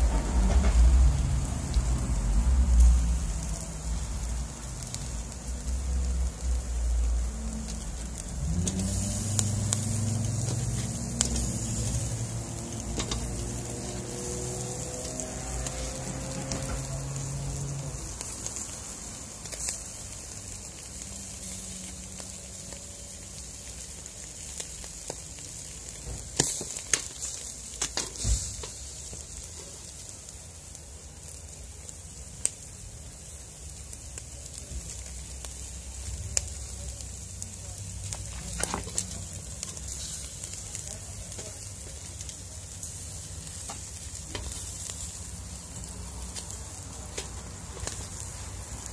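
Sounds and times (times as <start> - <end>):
low engine hum: 0.0 - 23.4
fish sizzling on charcoal grill: 0.0 - 48.9
sharp pops and crackles: 2.7 - 31.2, 33.6 - 48.9.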